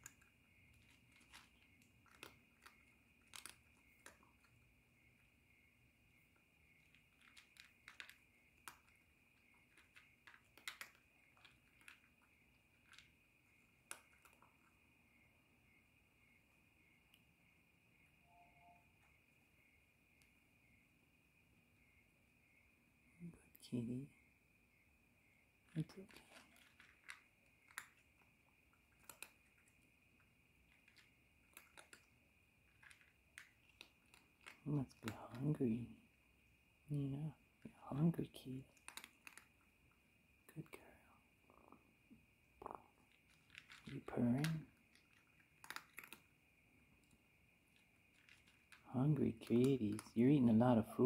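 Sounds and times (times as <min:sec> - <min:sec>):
cat chewing dry kibble: 0:00.0 - 0:15.2, 0:25.6 - 0:37.8, 0:38.6 - 0:50.3.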